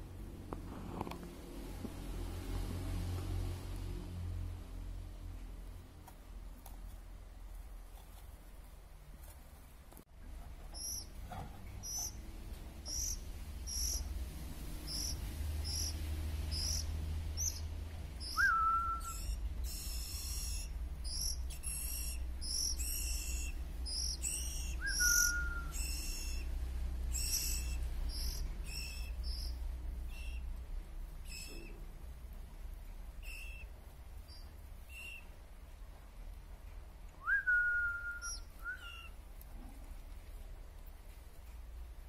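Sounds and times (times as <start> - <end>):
nestlings begging calls: 10.7 - 31.9, 33.0 - 35.4, 38.2 - 39.2.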